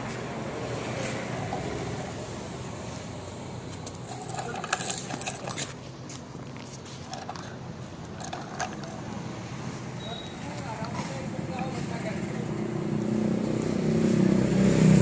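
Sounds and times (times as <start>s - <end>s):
clicks and rattles: 3.7s - 9.2s
toy tractor motor running: 3.8s - 5.8s, 7.0s - 9.2s.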